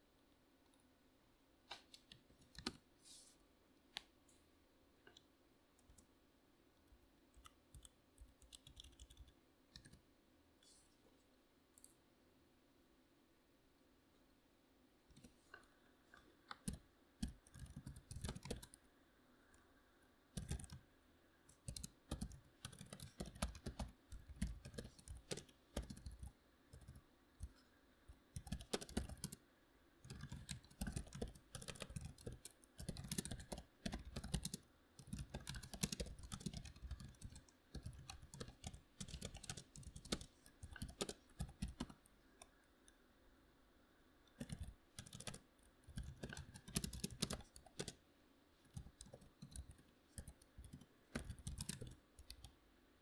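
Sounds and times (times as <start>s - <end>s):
typing on computer keyboard: 2.4s - 2.8s, 7.4s - 10.0s, 16.5s - 18.8s, 20.4s - 20.8s, 21.5s - 27.6s, 28.4s - 29.4s, 30.0s - 42.6s, 44.3s - 48.0s, 48.6s - 52.6s.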